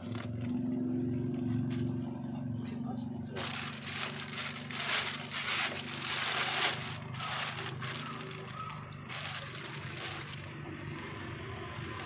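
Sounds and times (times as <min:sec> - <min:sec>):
plastic bag crinkling: 0:00.0 - 0:00.5, 0:03.4 - 0:12.0.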